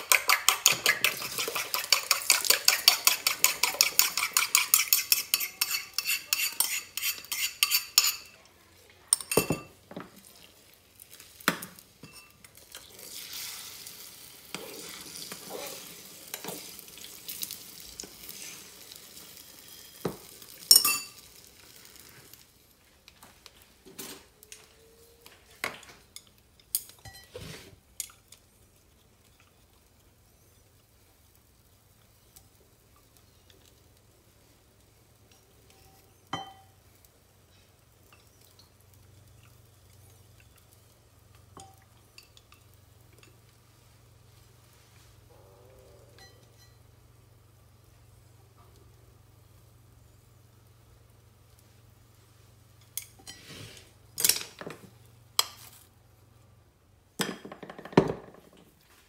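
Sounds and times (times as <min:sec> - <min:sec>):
utensil clinking against bowl: 0:00.0 - 0:08.4
egg sizzling in a pan: 0:00.0 - 0:24.8, 0:25.7 - 0:45.3.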